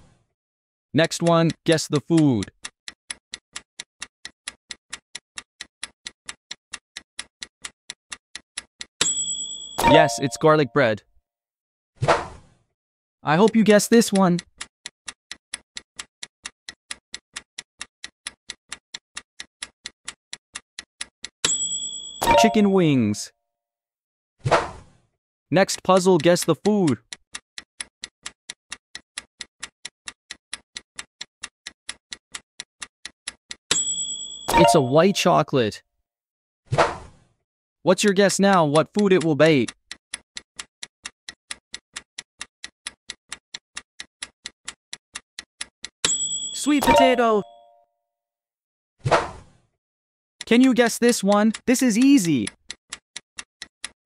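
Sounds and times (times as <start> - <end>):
quick clock ticks: 1.0 - 10.6, 13.3 - 22.9, 25.8 - 35.3, 38.4 - 47.7, 50.4 - 54.0.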